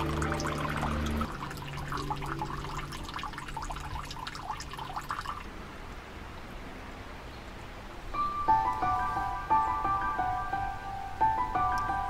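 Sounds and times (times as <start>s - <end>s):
water pouring into stone basin: 0.0s - 5.6s.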